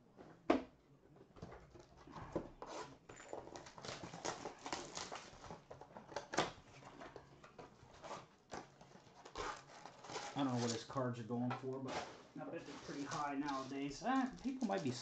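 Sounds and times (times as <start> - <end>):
trading cards rustling: 2.6 - 11.0, 11.8 - 15.0
plastic wrapper crinkling: 3.3 - 6.4, 12.6 - 15.0.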